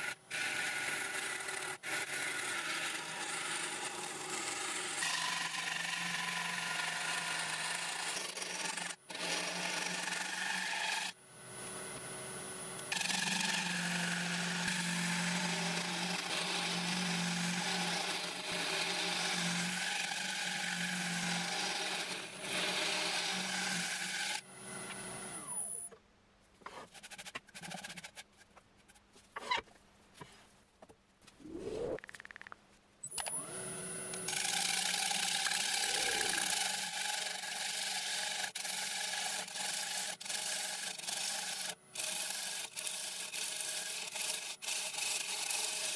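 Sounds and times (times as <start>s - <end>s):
wood lathe tool scraping wood: 12.9s - 25.0s, 34.3s - 45.9s.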